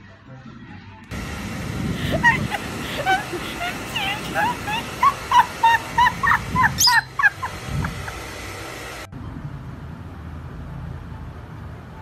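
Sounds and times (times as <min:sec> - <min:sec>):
lovebird chirping: 0:06.8 - 0:07.2.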